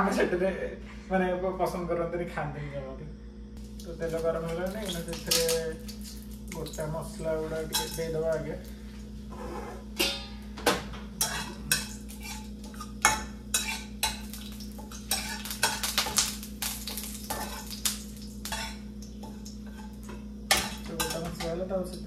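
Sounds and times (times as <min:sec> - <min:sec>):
spices sizzling in oil: 0:03.6 - 0:10.3, 0:11.1 - 0:22.0
spatula scraping metal pan: 0:11.2 - 0:14.2, 0:14.9 - 0:15.8.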